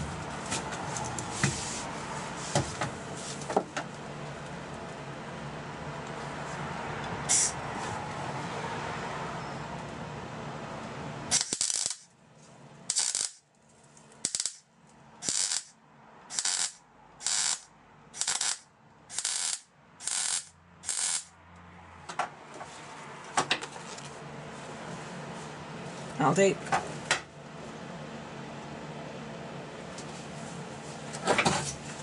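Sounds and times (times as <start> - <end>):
welder arc bursts: 7.3 - 7.6, 11.3 - 12.1, 12.9 - 13.4, 14.2 - 14.6, 15.2 - 21.3.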